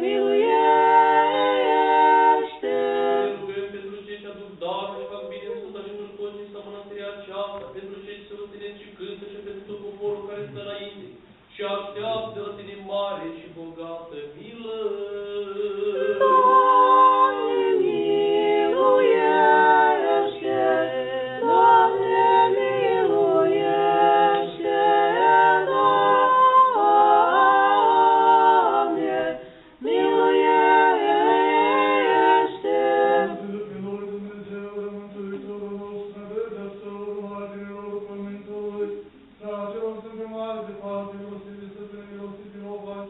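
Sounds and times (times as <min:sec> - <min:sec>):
choir singing a hymn: 0:00.0 - 0:04.1, 0:14.8 - 0:41.5
low chanting voice: 0:00.0 - 0:43.0.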